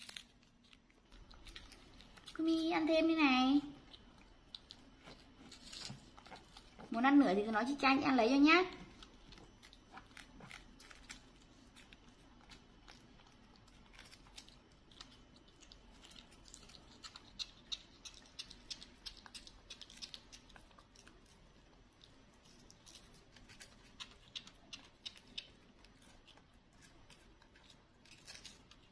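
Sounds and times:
monkey crunching a snack: 0.0s - 2.6s, 8.7s - 28.9s.

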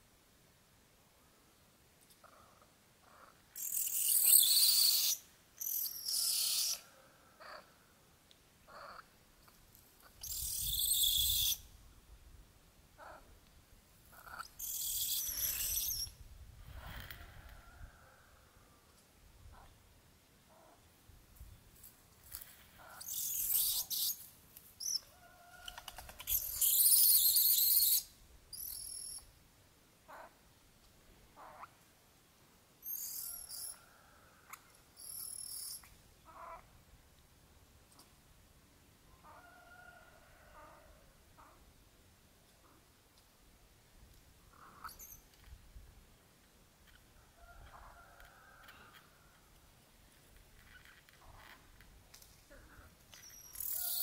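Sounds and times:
bird chirps: 3.6s - 6.8s, 10.2s - 11.6s, 14.4s - 16.1s, 26.2s - 29.3s, 32.8s - 33.8s, 35.0s - 35.9s, 44.8s - 45.3s, 53.1s - 54.0s.

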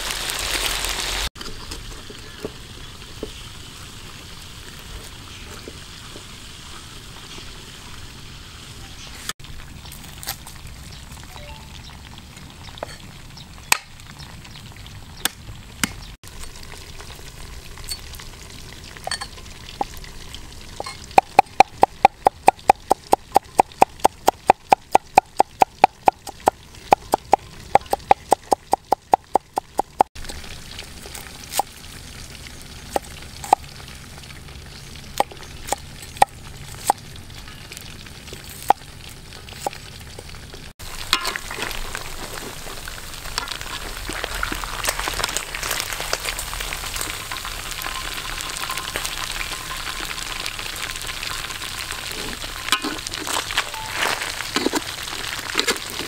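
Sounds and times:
oil sizzling in a wok: 0.0s - 15.2s, 16.3s - 25.0s, 30.2s - 56.0s.

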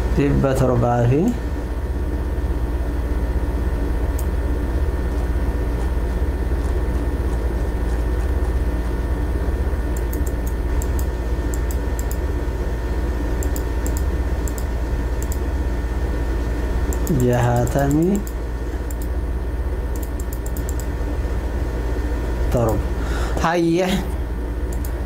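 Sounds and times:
low electrical hum: 0.0s - 25.0s
light clicks: 9.9s - 12.2s, 13.4s - 15.4s, 16.9s - 19.1s, 19.9s - 20.9s, 24.7s - 25.0s.

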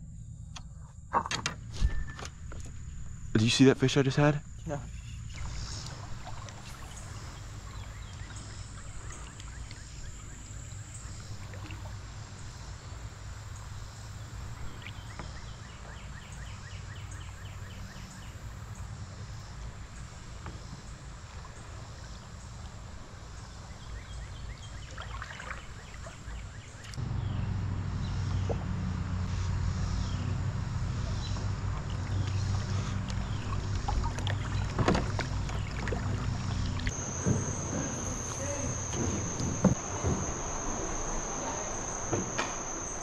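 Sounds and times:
low rumble of creek water: 0.0s - 43.0s
faint chirps or ticks: 5.4s - 11.8s.

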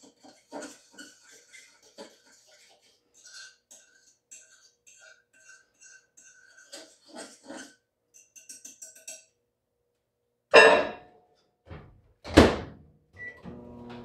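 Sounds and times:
spoon scraping in a saucepan: 0.0s - 9.4s.

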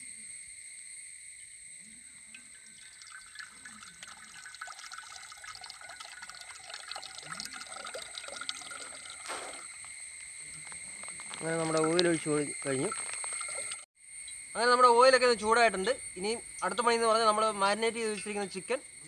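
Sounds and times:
oil trickling into pan: 2.1s - 13.9s.

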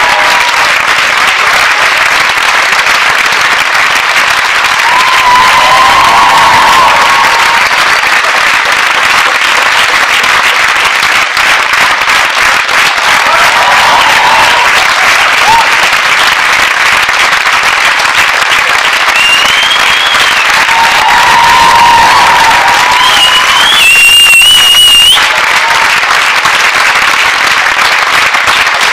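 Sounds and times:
audience applauding: 0.0s - 28.9s
voices whooping: 4.8s - 7.7s, 20.5s - 25.4s.

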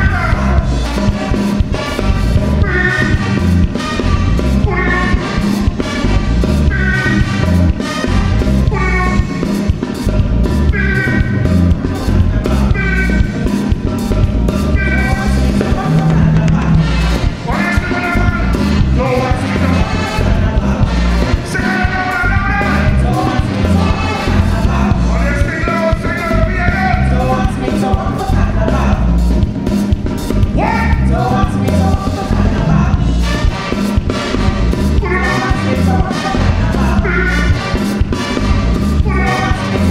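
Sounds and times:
saxophones and trumpets: 0.0s - 29.4s, 30.2s - 39.9s
lead vocalist singing: 0.0s - 29.5s, 30.3s - 39.9s
bass and drums: 0.0s - 39.9s.

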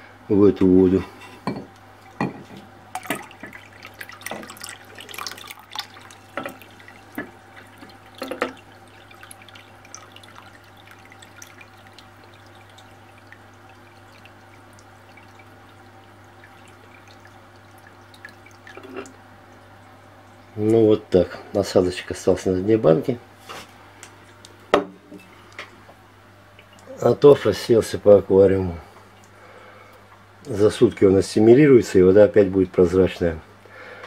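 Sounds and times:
steady low hum: 0.0s - 34.0s
water splashing and dripping: 2.0s - 20.6s, 26.5s - 27.1s.

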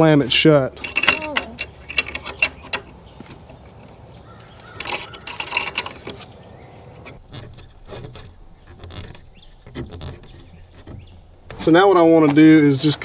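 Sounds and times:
metal latch clicking and rattling: 0.7s - 3.6s, 4.3s - 6.4s.

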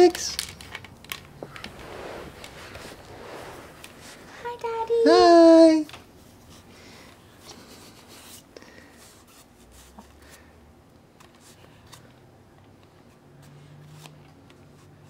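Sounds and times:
faint rustling: 0.5s - 10.5s.

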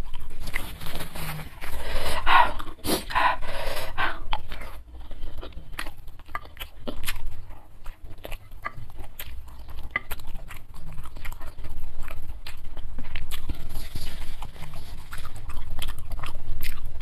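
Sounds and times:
eating mouth sounds: 0.0s - 17.0s
woman panting: 1.8s - 4.3s.

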